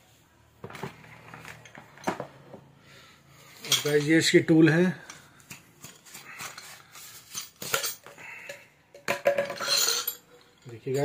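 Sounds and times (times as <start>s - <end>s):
steel chisels clinking: 3.5s - 11.0s.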